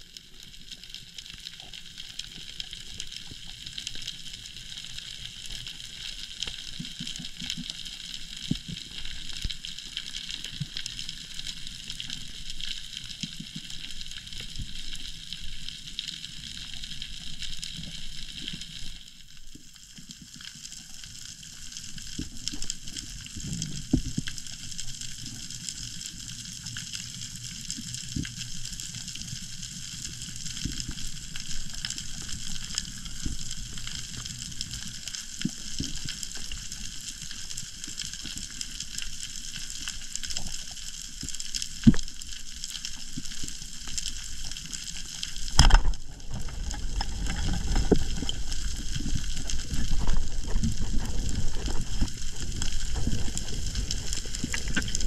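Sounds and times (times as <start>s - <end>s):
muffled water movement: 0.0s - 55.0s
steady underwater hiss: 0.0s - 55.0s.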